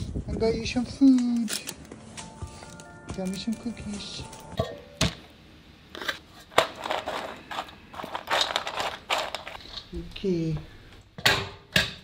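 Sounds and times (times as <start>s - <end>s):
bags and packaging rustling: 0.6s - 4.6s, 6.0s - 10.0s.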